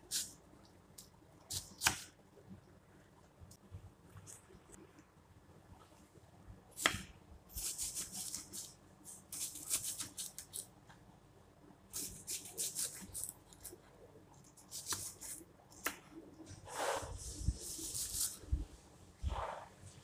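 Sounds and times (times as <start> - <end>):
knife slicing onion on wooden board: 14.7 - 16.0.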